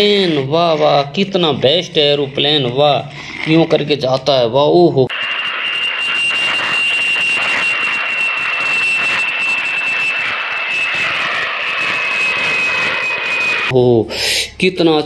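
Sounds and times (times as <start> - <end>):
jet airliner flying overhead: 5.1 - 13.7.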